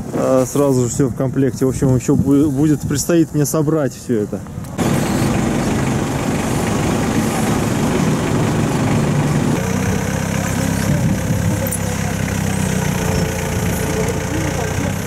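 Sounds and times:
engine idling: 4.8s - 15.0s.

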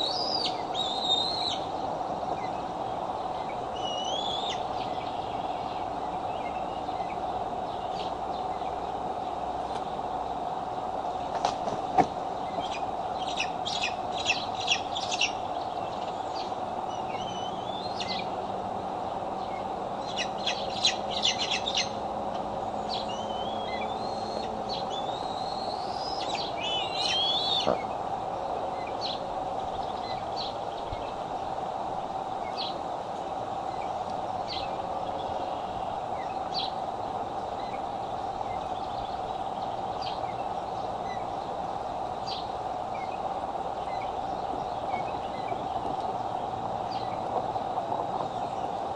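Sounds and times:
wavering whistled calls: 0.0s - 8.8s, 12.4s - 18.4s, 19.4s - 31.2s, 33.6s - 36.8s, 37.4s - 41.4s
steady low hum: 0.0s - 48.9s
eagles chittering: 22.9s - 31.2s.

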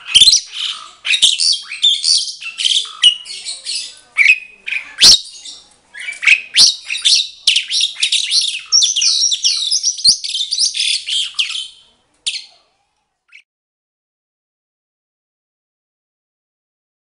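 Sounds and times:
starlings singing whistles and chatter: 0.0s - 12.6s.

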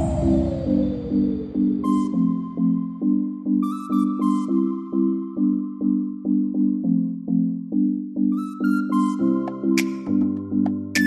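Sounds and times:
pulsing synthesizer chords: 0.0s - 8.5s.

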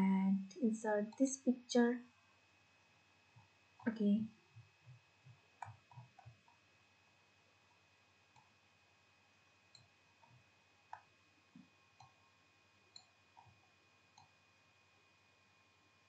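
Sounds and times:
faint high-pitched hum: 0.0s - 16.0s
computer mouse clicks: 4.8s - 6.6s, 8.3s - 8.5s, 9.7s - 12.2s, 12.9s - 14.4s.

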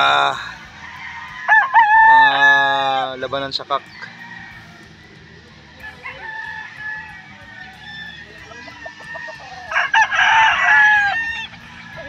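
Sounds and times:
rooster crowing loudly: 0.0s - 3.1s, 5.8s - 12.0s
distant roosters crowing: 0.0s - 12.0s.

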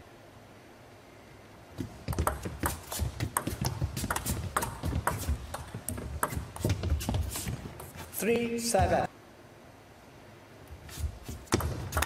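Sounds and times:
ping pong ball clicking: 2.0s - 6.6s, 11.5s - 12.0s.

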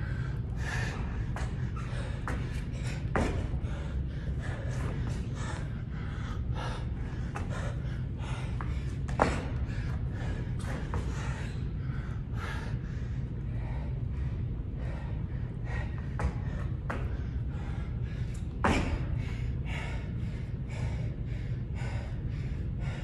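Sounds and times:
low hum: 0.0s - 23.0s
man panting: 0.0s - 23.0s.

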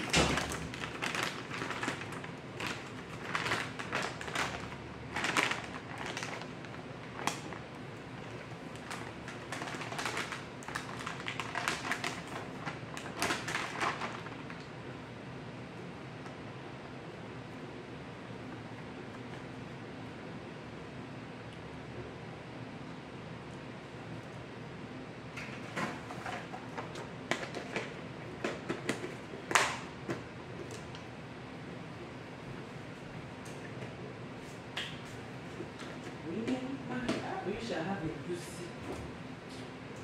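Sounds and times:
plastic packaging crinkling: 0.0s - 14.8s.

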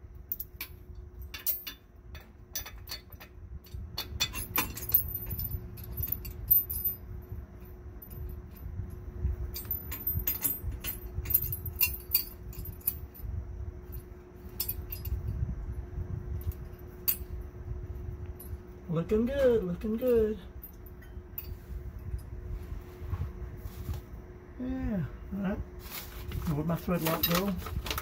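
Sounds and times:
low background rumble: 0.0s - 28.0s
metal bolts and washers clinking: 0.2s - 15.4s, 16.4s - 17.4s, 19.2s - 22.3s, 26.9s - 28.0s.

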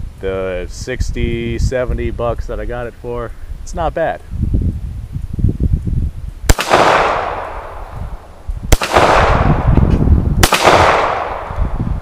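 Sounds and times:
pistol shots with echo: 6.5s - 9.7s, 10.4s - 11.8s.

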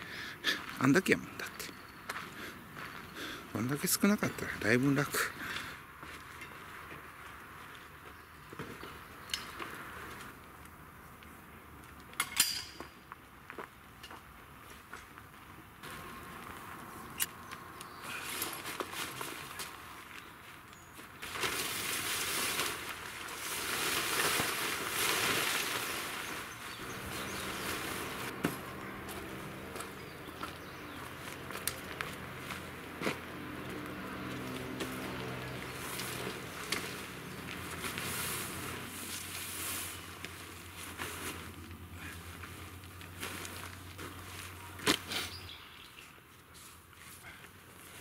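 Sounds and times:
tent fabric rustling: 21.1s - 29.9s, 35.8s - 45.0s
steady low hum: 26.6s - 34.6s.

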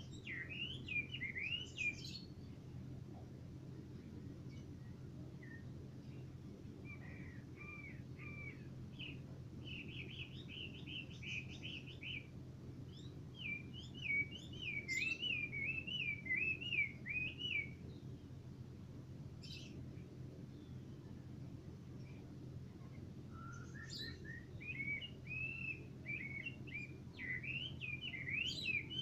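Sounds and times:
songbird singing: 0.0s - 29.0s.

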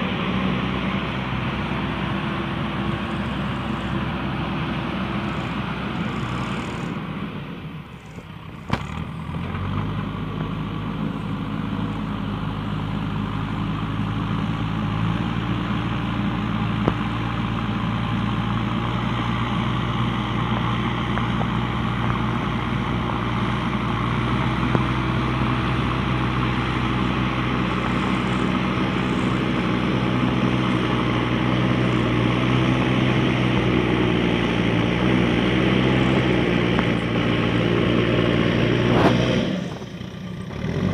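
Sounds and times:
toy motor whirring: 5.3s - 7.0s, 7.9s - 8.3s.

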